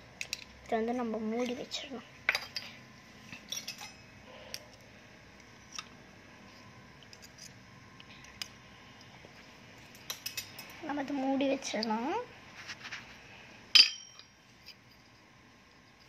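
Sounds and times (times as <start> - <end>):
metal spoons clinking on steel bowl: 3.5 - 4.0, 10.0 - 10.8, 13.8 - 14.3.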